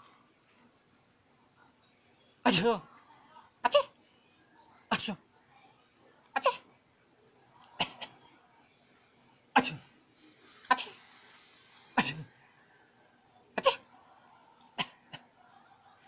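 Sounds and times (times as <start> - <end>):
man making cough-like bursts: 9.6 - 9.8, 12.0 - 12.3.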